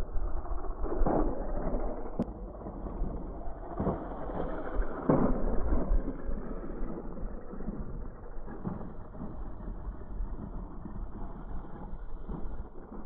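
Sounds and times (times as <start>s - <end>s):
toy car tyres on gravel: 0.0s - 13.0s
wind rumbling on microphone: 0.0s - 13.0s.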